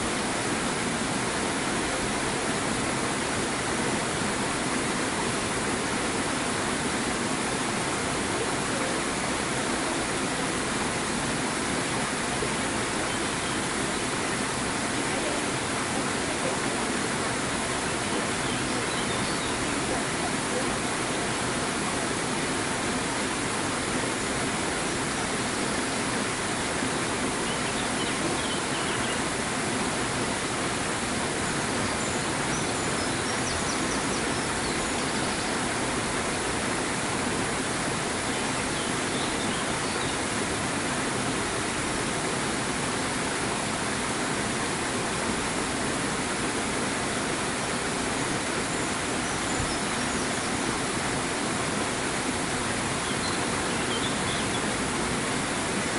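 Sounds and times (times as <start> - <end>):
water rushing: 0.0 - 55.9
small birds chirping: 17.9 - 21.4, 27.4 - 29.3, 31.5 - 35.8, 48.7 - 50.6, 53.0 - 54.8.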